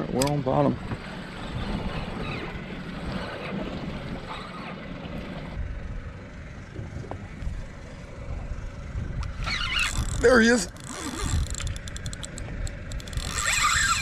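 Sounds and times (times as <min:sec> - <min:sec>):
wind buffeting microphone: 0:00.8 - 0:04.4, 0:05.0 - 0:14.0
fishing reel clicks: 0:09.3 - 0:14.0.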